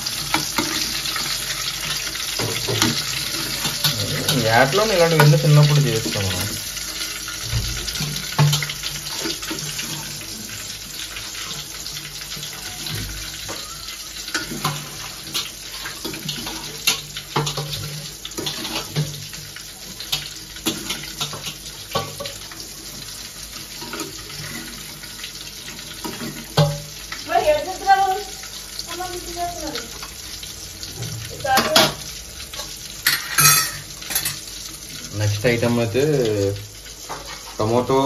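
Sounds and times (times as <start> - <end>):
fish sizzling in hot oil: 0.0 - 38.0
spoon clinking against pan: 33.0 - 34.4.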